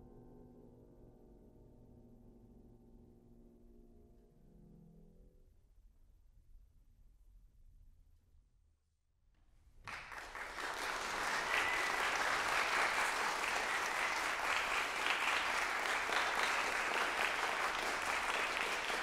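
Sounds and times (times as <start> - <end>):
audience applauding: 9.8 - 19.0.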